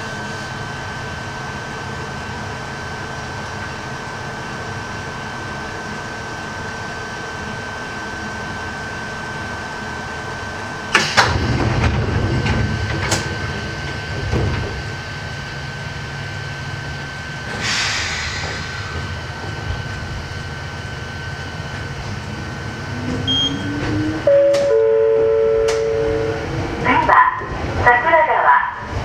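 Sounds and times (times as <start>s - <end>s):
electric train humming: 0.0s - 29.0s
loud clunk: 10.9s - 13.4s
low rattling rumble: 11.1s - 24.2s.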